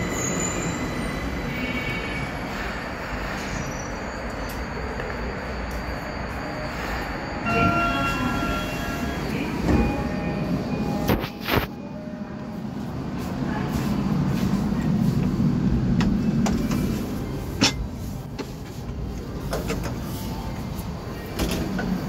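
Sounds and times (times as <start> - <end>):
subway train rumble and hum: 0.0 - 22.0.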